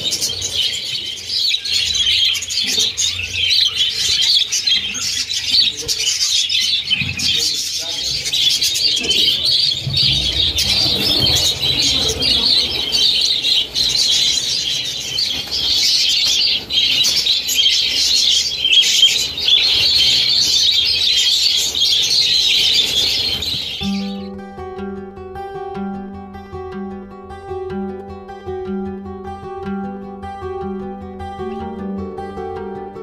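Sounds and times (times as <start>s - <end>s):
budgerigars chattering: 0.0s - 24.3s
wings flapping: 9.0s - 14.4s, 19.0s - 23.8s.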